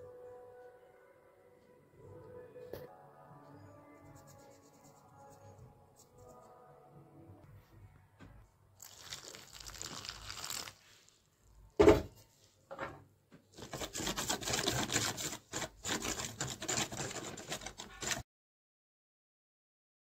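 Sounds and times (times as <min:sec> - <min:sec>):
spoon scraping steel bowl: 0:13.6 - 0:18.2.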